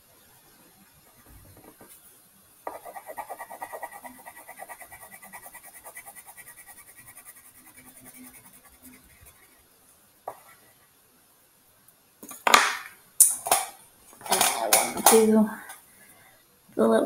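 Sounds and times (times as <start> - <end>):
wax crayon scribbling on paper: 2.7 - 9.6.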